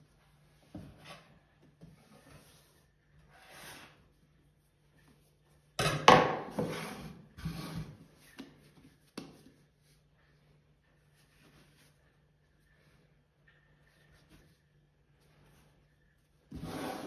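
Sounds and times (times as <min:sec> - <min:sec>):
bench scraper scraping dough: 0:06.4 - 0:08.0, 0:16.5 - 0:17.0
dough rubbing and brushing: 0:06.6 - 0:17.0.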